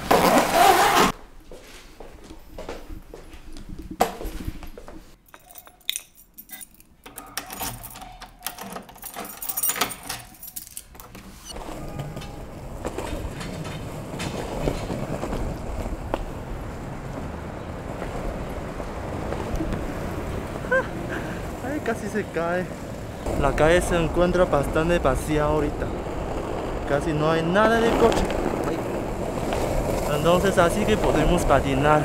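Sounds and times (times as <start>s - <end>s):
keys jangling: 5.2s - 11.1s
skateboard wheels rolling: 11.2s - 32.0s
wheels ticking over pavement joints: 11.5s - 32.0s.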